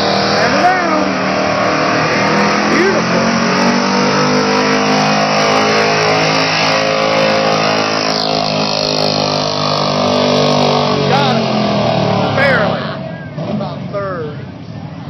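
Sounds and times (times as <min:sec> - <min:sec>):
truck engine at high revs: 0:00.0 - 0:15.0.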